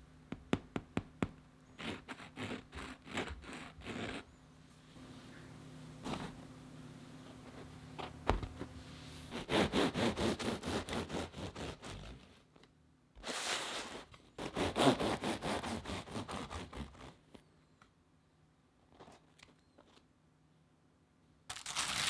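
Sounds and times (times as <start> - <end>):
bread knife sawing crust: 1.7 - 4.4, 9.3 - 12.3, 13.2 - 17.2
knife scrape: 1.7 - 4.4, 13.2 - 17.1.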